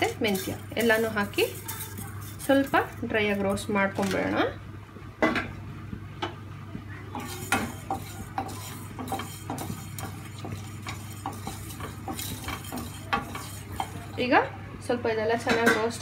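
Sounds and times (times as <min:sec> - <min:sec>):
wooden spatula scraping a pan: 0:00.0 - 0:04.2, 0:07.2 - 0:14.4
seeds roasting in a frying pan: 0:00.0 - 0:04.3, 0:07.1 - 0:14.5
steady low hum: 0:00.0 - 0:15.4.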